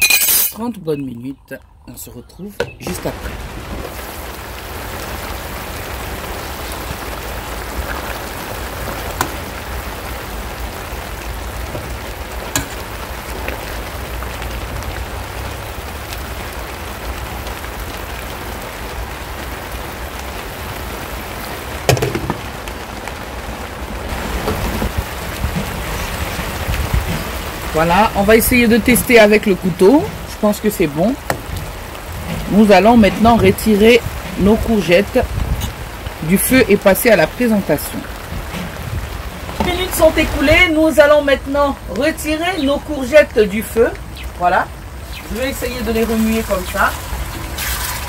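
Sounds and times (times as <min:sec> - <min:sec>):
sauce sizzling in a frying pan: 0:03.2 - 0:22.4, 0:42.0 - 0:48.0
loud knock: 0:21.9 - 0:22.5.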